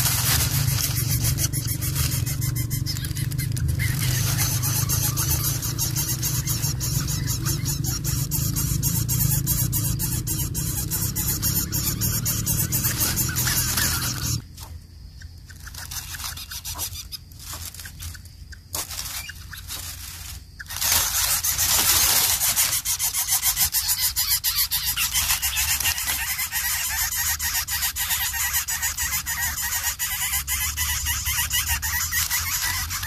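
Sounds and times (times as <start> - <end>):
nestlings rasping begging calls: 0.0 - 33.0.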